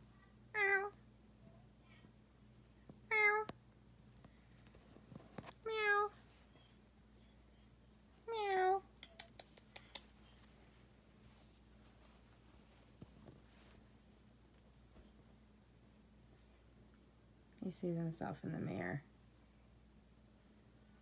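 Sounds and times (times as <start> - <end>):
cat meowing: 0.5 - 1.0, 3.1 - 3.5.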